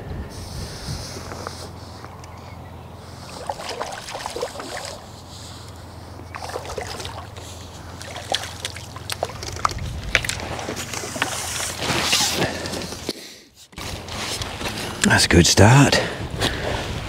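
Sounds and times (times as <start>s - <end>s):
fish splashing at water surface: 3.2s - 5.2s, 6.3s - 11.8s.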